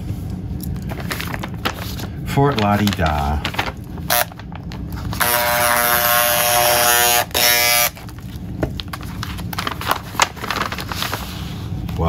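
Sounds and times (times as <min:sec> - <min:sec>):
paper rustling: 0:00.0 - 0:05.3, 0:08.0 - 0:12.0
electric scissors motor whining: 0:05.2 - 0:08.0.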